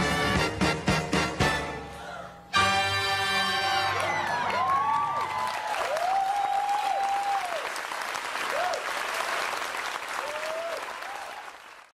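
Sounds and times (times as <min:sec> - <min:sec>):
audience applauding: 0:03.6 - 0:12.0
whoops: 0:04.0 - 0:07.7, 0:08.5 - 0:08.9, 0:10.2 - 0:11.5.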